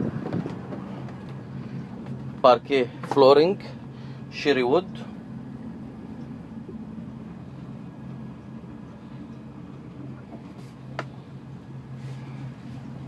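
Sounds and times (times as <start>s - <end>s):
low machinery hum: 0.0s - 13.0s.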